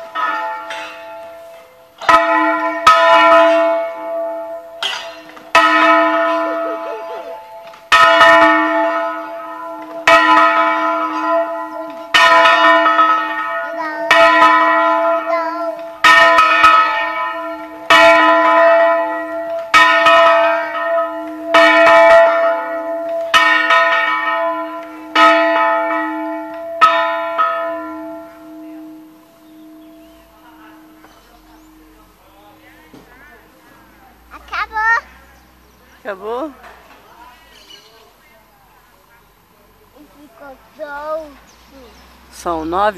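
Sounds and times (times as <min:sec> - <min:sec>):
church bell ringing: 0:00.0 - 0:32.9.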